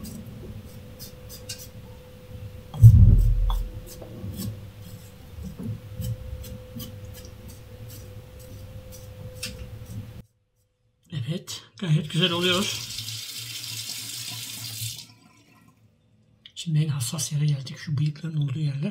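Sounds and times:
low thump: 2.8 - 3.9.

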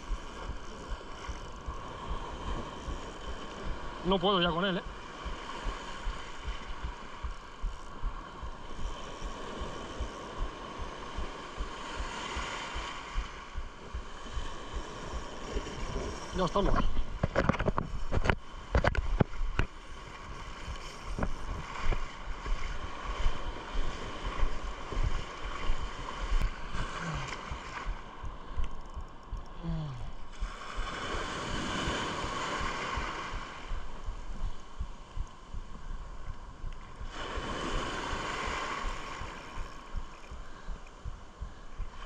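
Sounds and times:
wind buffeting microphone: 0.0 - 4.1, 4.8 - 29.5, 30.1 - 42.0
surf washing over sandy beach: 0.0 - 29.2, 30.0 - 42.0.

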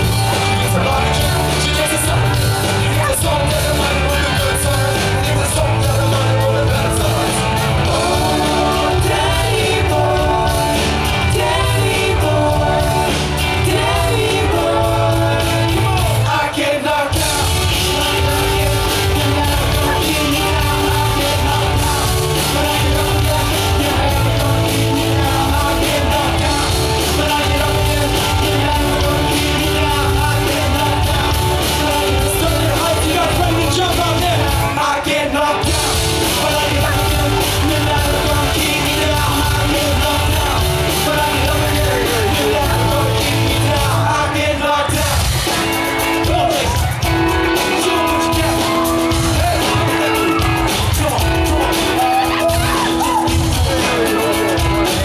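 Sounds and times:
live rock band with singer: 0.0 - 55.0.

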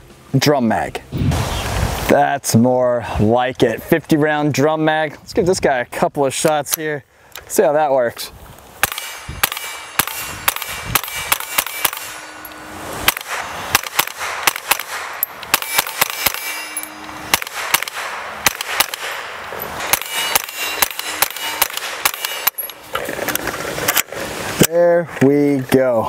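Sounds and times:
rapid gunshots: 8.8 - 12.3, 13.1 - 16.6, 17.3 - 22.6
short ringing tone: 15.7 - 17.3, 20.0 - 21.7.

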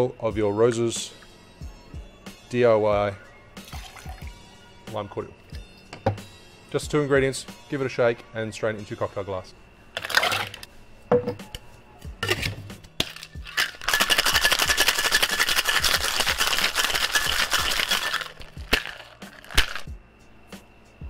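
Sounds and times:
ice rattling in cocktail shaker: 3.6 - 4.3, 10.0 - 10.6, 13.0 - 19.9
shaker tins clinking: 10.0 - 10.7, 12.2 - 19.9.

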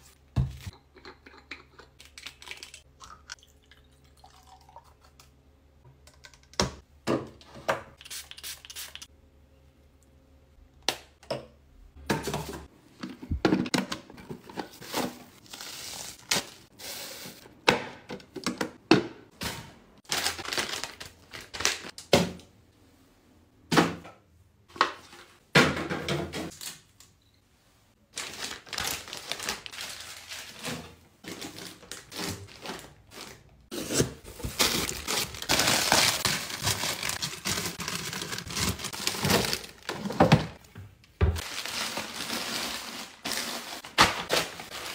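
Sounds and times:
items thunking down: 12.0 - 15.4
plastic packaging crinkling: 20.1 - 21.9, 28.1 - 30.7, 34.3 - 40.2, 41.4 - 44.9.

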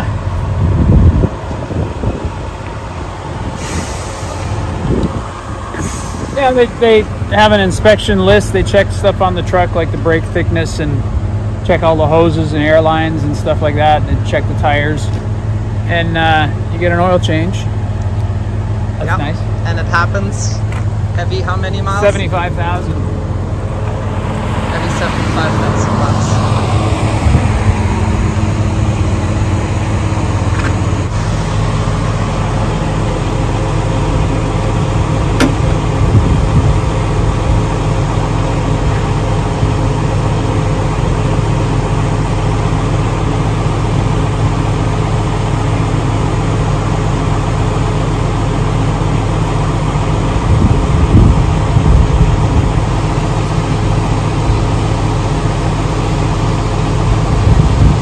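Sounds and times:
diesel truck engines idling: 0.0 - 58.0
higher hum: 0.0 - 58.0.

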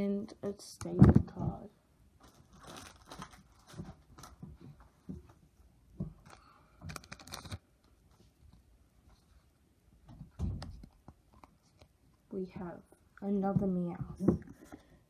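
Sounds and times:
foil pack crinkling: 2.2 - 4.5, 6.3 - 7.6.

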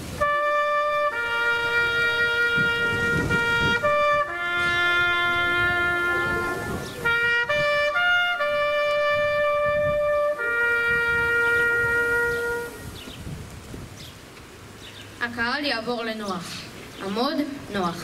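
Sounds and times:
trumpet playing slow call: 0.0 - 13.0.

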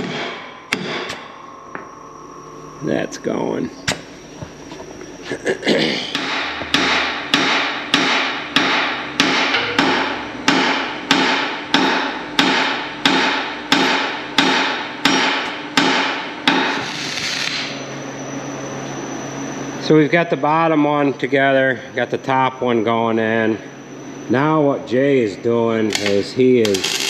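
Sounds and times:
hammer striking steel: 0.0 - 1.2, 6.1 - 16.8.

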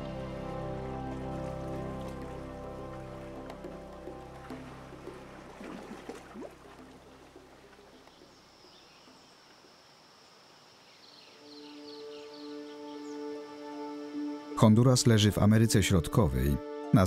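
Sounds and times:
background music: 0.0 - 7.7, 11.4 - 17.0
insects humming: 0.0 - 15.2.

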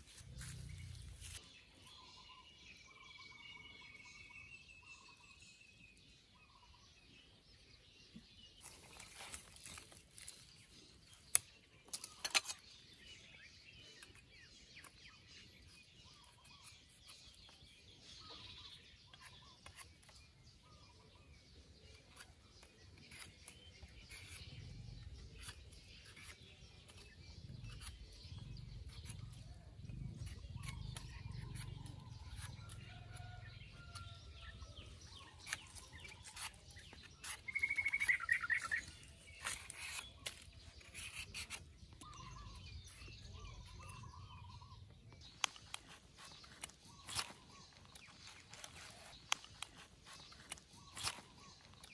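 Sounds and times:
birds chirping: 0.0 - 51.9
fast bird trill: 37.2 - 40.1
peeler scraping clicks: 45.3 - 51.9.

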